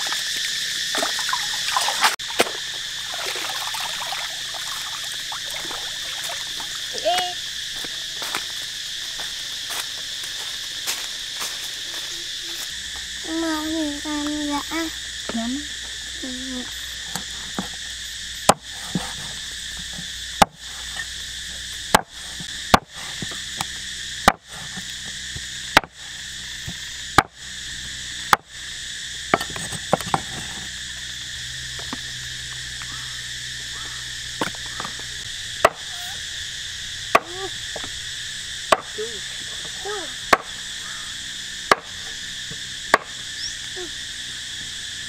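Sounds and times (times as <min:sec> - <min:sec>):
crickets chirring: 0:00.0 - 0:45.0
blade chopping on wooden board: 0:21.9 - 0:23.4, 0:24.2 - 0:24.8, 0:25.8 - 0:26.0, 0:29.4 - 0:30.4, 0:41.7 - 0:42.0.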